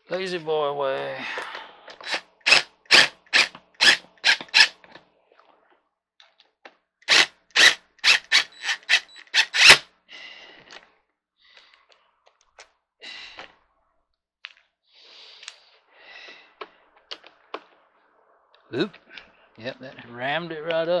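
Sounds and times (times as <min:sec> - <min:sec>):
impact driver bursts: 0:02.0 - 0:04.8, 0:07.1 - 0:09.9.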